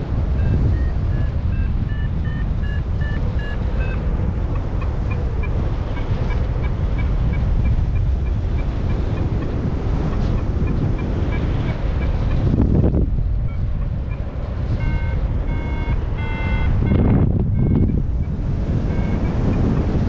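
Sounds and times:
wind buffeting microphone: 0.0s - 20.0s
electronic beeping: 0.4s - 4.0s, 13.4s - 19.8s.

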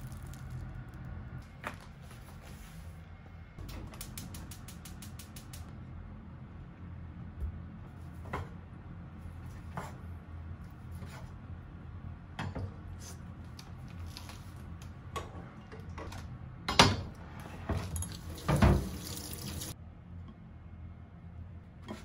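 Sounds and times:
tap water running into sink: 18.0s - 19.8s.

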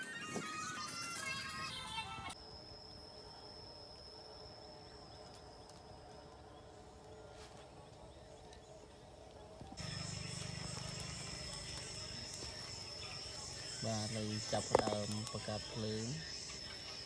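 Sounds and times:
high-pitched insect drone: 9.8s - 17.0s.

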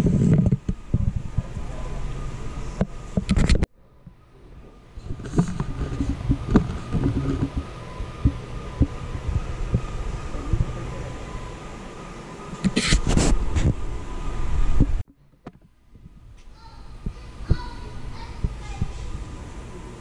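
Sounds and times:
faint steady hum: 0.0s - 20.0s
camera handling rumble: 3.1s - 3.7s, 5.0s - 9.0s, 12.6s - 13.8s.

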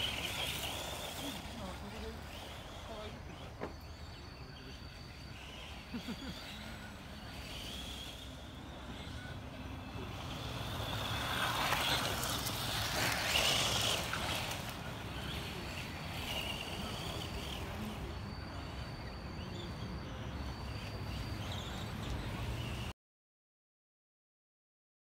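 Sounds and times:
electric motor whining: 0.0s - 22.9s
tyres scrabbling over loose soil: 10.8s - 15.4s.

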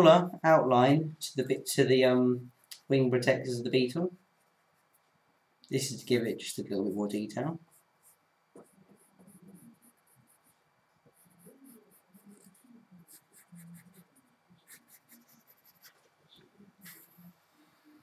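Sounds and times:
pencil scratching on paper: 7.7s - 17.4s.

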